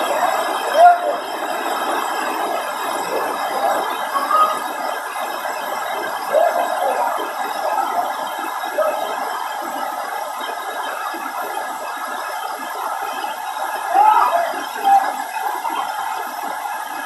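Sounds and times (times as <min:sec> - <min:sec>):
waterfall rushing: 0:00.0 - 0:17.0.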